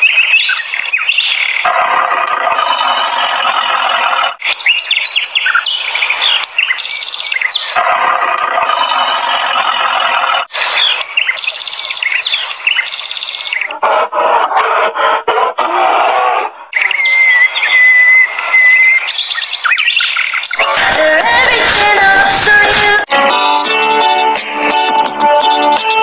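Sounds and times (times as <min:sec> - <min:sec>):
birds chirping and twittering: 0:00.0 - 0:15.6, 0:16.5 - 0:21.1.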